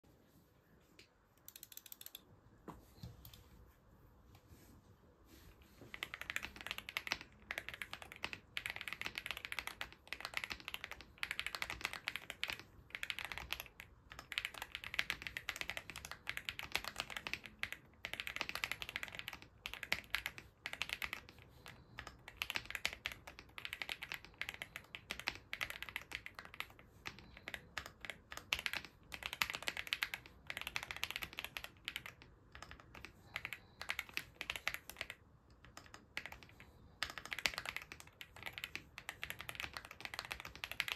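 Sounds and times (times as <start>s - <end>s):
fast typing on mechanical keyboard: 5.9s - 40.9s.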